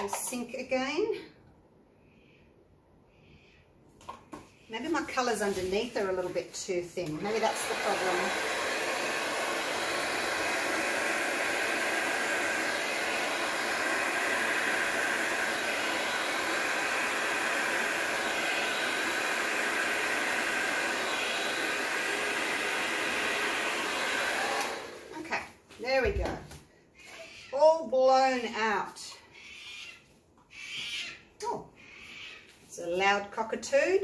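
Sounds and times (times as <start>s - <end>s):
hair dryer running: 4.8s - 26.5s.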